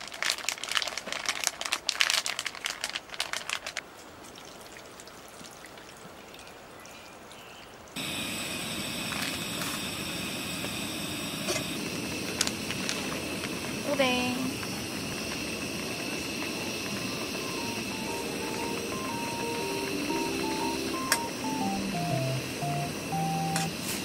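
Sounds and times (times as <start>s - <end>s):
plastic bag crinkling: 0.0s - 3.8s, 12.3s - 13.6s
faint high steady tones: 8.0s - 24.0s.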